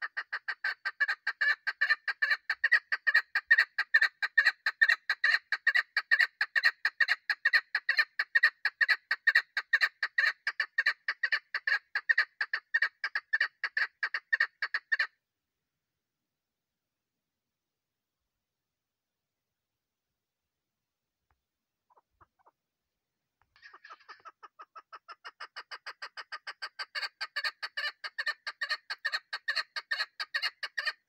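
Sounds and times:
partridge clucking calls: 0.0s - 15.1s, 21.9s - 22.6s, 23.5s - 31.0s.

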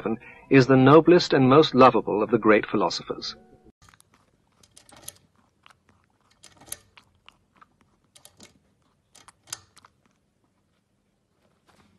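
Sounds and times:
guinea pig drinking from spout: 3.8s - 10.8s.

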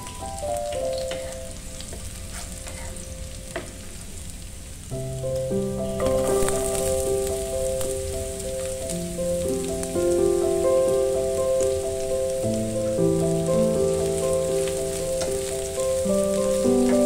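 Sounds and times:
gentle keyboard music: 0.0s - 4.0s, 4.9s - 17.0s
garlic sizzling in oil: 0.0s - 17.0s
wooden spatula scraping a pan: 2.2s - 3.0s.

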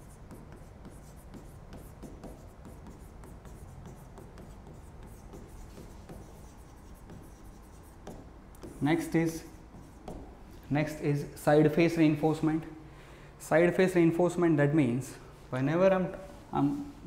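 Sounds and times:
marker writing on a whiteboard: 0.0s - 11.2s.

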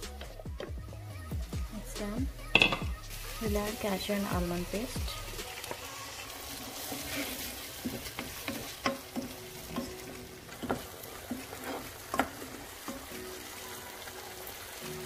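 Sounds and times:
low frying sizzle: 0.0s - 15.0s
spatula knocking and scraping wok: 2.5s - 3.0s, 6.8s - 13.1s.

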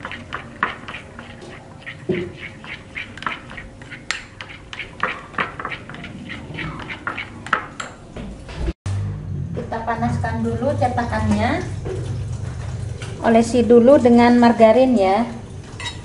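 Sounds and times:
spoon stirring batter in glass bowl: 0.0s - 7.9s.

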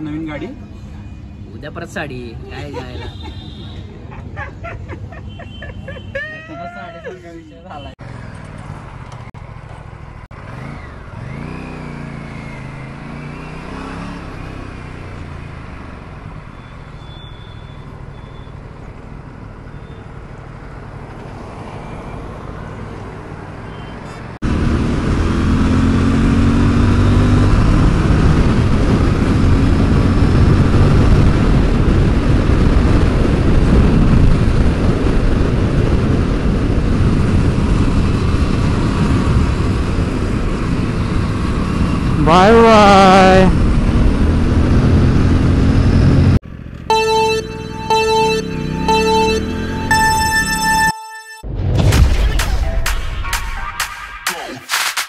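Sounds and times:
road noise: 0.0s - 51.5s
wind noise: 27.8s - 41.3s
motorcycle engine: 43.6s - 50.9s.

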